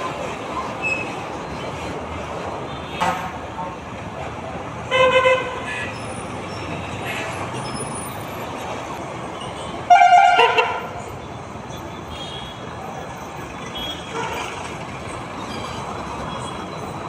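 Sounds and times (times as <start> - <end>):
traffic din: 0.0 - 17.0
vehicle horn honking: 9.9 - 10.9.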